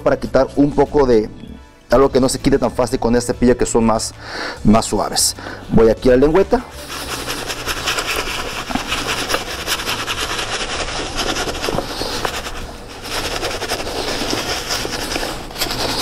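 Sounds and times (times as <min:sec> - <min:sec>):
brush scrubbing a sneaker: 0:06.8 - 0:16.0.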